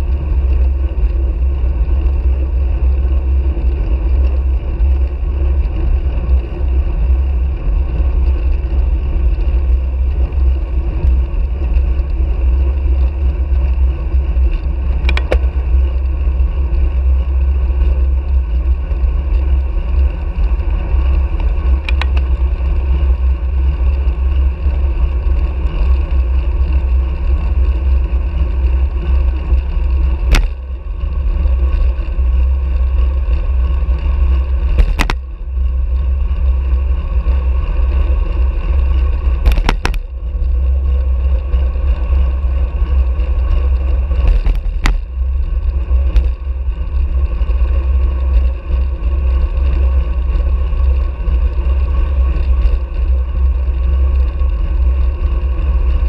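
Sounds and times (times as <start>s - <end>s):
tyre and road noise: 0.0s - 56.0s
wind rushing over microphone: 0.0s - 56.0s
sharp clicks: 15.0s - 15.5s, 21.8s - 22.3s, 34.8s - 35.2s.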